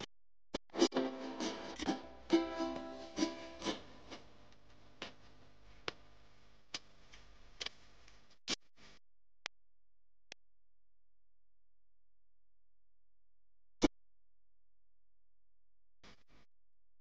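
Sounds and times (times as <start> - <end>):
plucked string music: 0.8 - 3.8.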